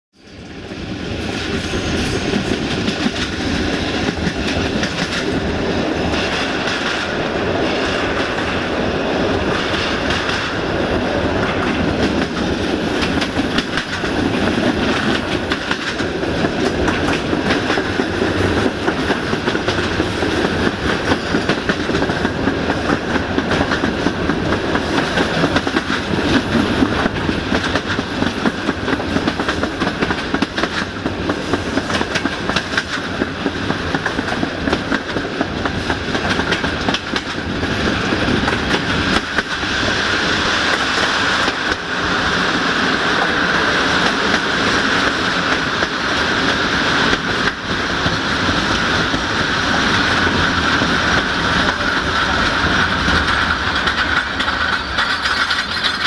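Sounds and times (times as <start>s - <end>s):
train wheels rumbling and clacking: 0.2s - 56.0s.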